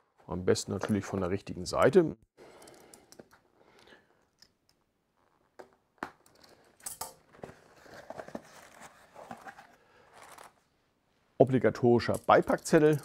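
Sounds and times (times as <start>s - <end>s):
cardboard rustling and scraping: 7.2s - 10.6s.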